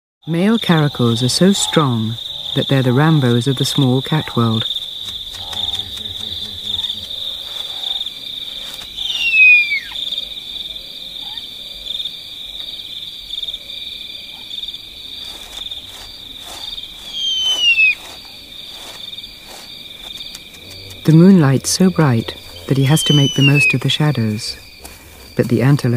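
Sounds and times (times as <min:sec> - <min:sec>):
crickets trilling: 0:00.2 - 0:25.9
bird whistled call: 0:08.9 - 0:10.0, 0:17.0 - 0:18.0, 0:22.8 - 0:23.8.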